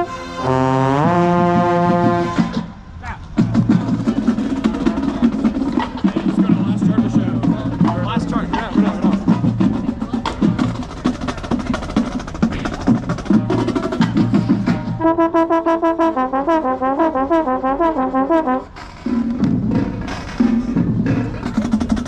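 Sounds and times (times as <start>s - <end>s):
marching band brass and percussion: 0.0s - 22.0s
fast bright run of notes: 3.4s - 20.7s.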